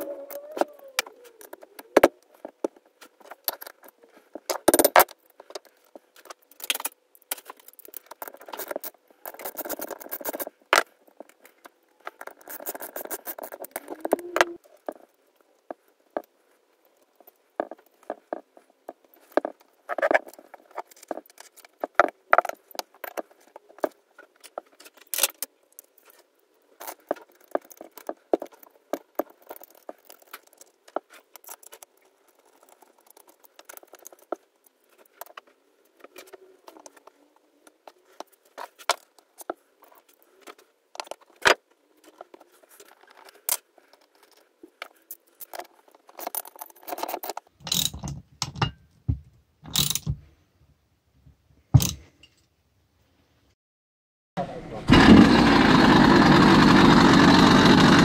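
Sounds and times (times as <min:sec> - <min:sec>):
metal parts clicking and rattling: 0:03.2 - 0:15.2, 0:19.2 - 0:26.2, 0:26.8 - 0:35.4, 0:38.6 - 0:48.8, 0:49.7 - 0:50.2, 0:51.8 - 0:52.5.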